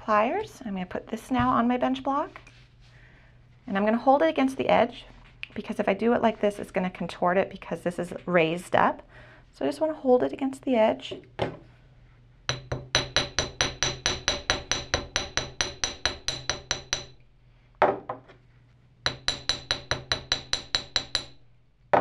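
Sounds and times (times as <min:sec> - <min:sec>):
hammer tapping wire on steel block: 0:12.5 - 0:17.2, 0:19.1 - 0:21.4.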